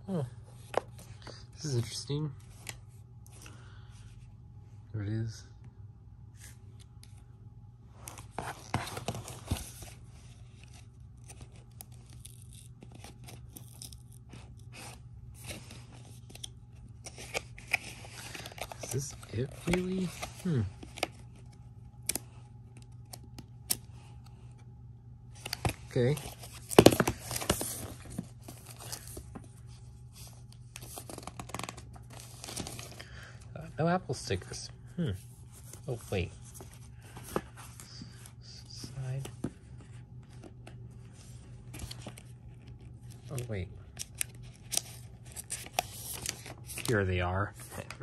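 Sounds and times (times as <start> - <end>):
cardboard rustling and scraping: 8.0 - 11.5, 25.4 - 32.9
card packaging rustling and tapping: 16.1 - 21.4, 25.4 - 29.6, 30.8 - 33.0.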